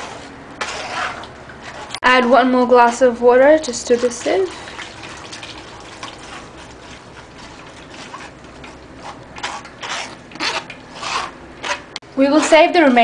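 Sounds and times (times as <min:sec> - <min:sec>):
wooden spoon scraping sieve mesh: 0:00.0 - 0:04.7, 0:06.1 - 0:13.0
water pouring into a sieve: 0:03.7 - 0:08.4.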